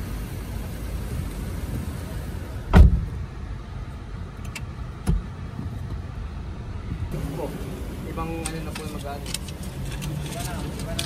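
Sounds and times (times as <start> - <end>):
car engine idling: 0.0 - 11.0
heavy thump: 2.7 - 3.2.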